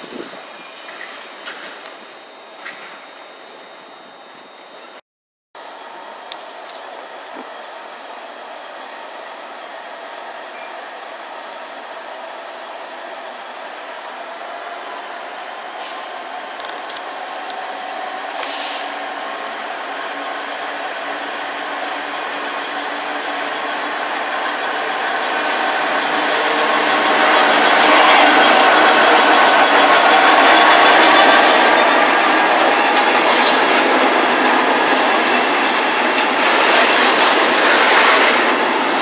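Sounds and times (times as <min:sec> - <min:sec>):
diesel locomotive passing: 0:05.6 - 0:39.0
short high hiss: 0:18.3 - 0:19.0.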